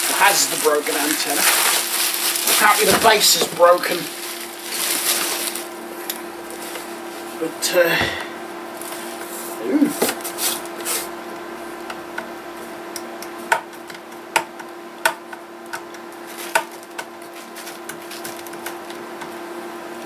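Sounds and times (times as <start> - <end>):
bubble wrap rustling: 0.0 - 7.4, 16.1 - 19.0.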